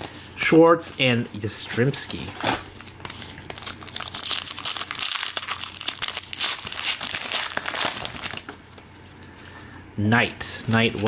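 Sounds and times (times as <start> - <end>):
card pack wrapper crinkling: 1.9 - 8.6.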